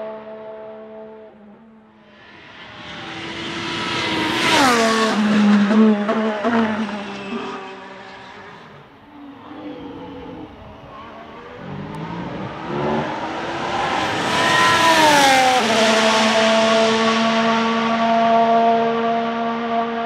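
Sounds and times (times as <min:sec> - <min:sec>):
racing car engine passing: 0:00.0 - 0:20.0.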